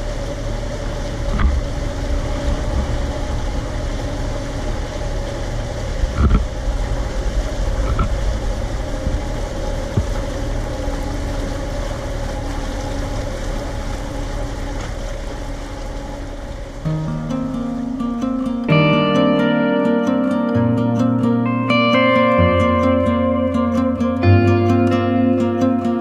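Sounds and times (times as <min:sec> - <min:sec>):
engine knocks: 0:00.0 - 0:16.8
engine running with low hum: 0:00.0 - 0:26.0.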